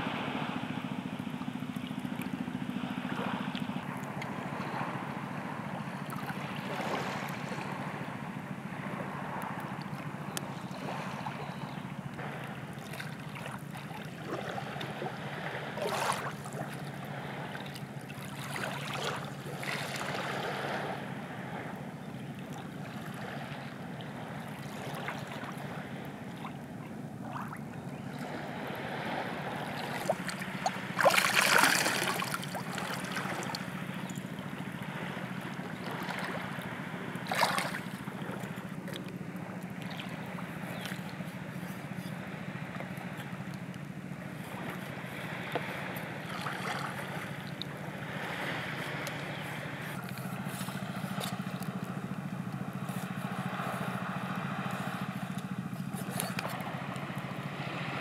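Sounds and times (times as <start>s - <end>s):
steady low hum: 0.0s - 58.0s
sea water lapping on rock: 9.2s - 21.1s, 22.4s - 58.0s
water splashing: 12.2s - 20.8s, 27.2s - 56.7s.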